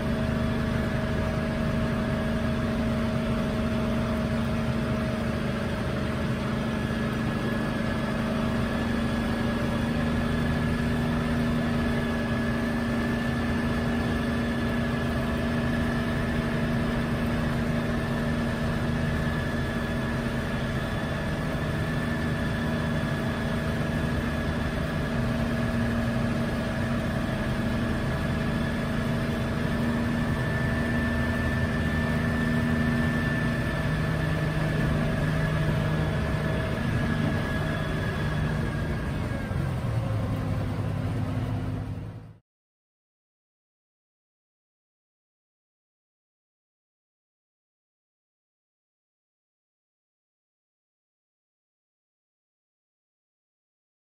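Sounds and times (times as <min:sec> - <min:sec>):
helicopter engine and rotors running: 0:00.0 - 0:42.4.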